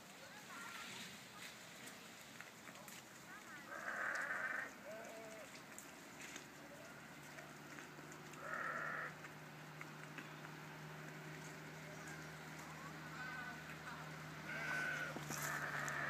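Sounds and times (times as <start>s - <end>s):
farm animal calling: 3.3s - 9.4s, 10.2s - 16.0s.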